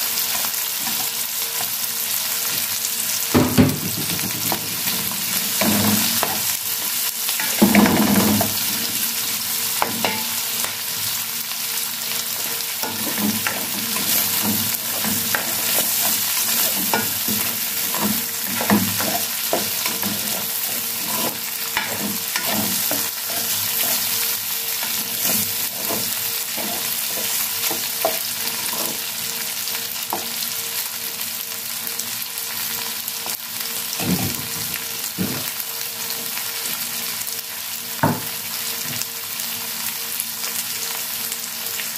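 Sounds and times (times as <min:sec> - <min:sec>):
food sizzling in a wok: 0:00.0 - 0:41.9
spatula scraping a pan: 0:04.0 - 0:09.1, 0:12.3 - 0:29.1.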